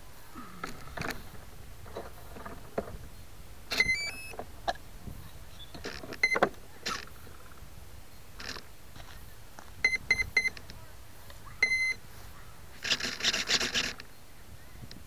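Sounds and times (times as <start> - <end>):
short beep: 11.6 - 12.0.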